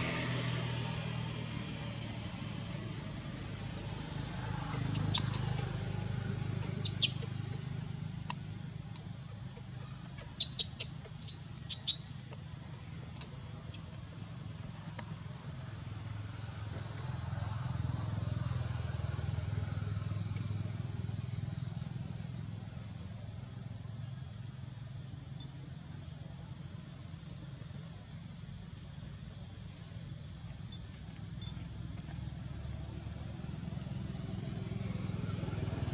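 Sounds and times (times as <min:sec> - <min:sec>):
engine humming: 0:00.0 - 0:35.9.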